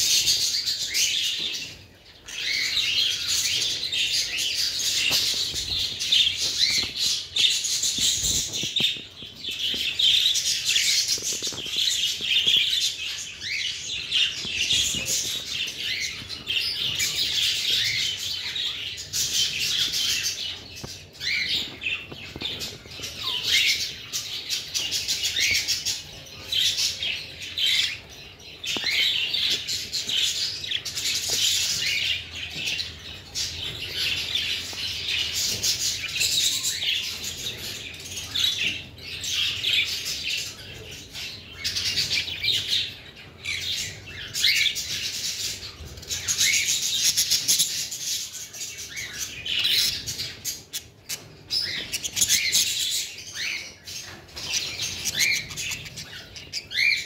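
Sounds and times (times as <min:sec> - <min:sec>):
budgerigars chirping: 0:48.6 - 0:57.0.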